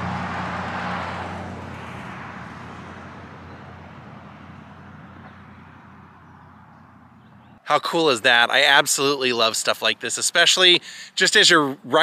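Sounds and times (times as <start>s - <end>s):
vehicle driving away: 0.0s - 7.6s.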